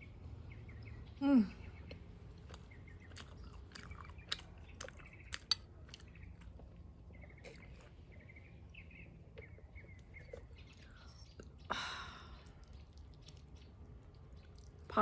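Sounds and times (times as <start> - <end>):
small bird chirping: 0.0 - 15.0
person chewing with wet clicks: 1.7 - 15.0.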